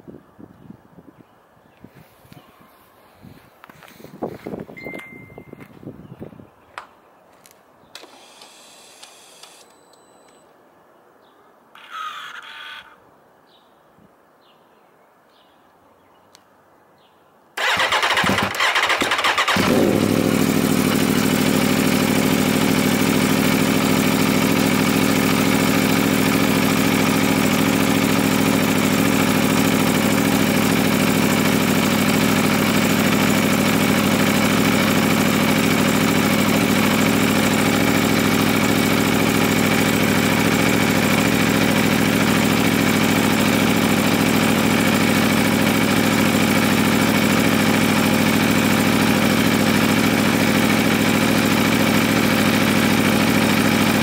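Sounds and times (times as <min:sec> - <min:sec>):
motorcycle engine idling: 0:17.6 - 0:54.0.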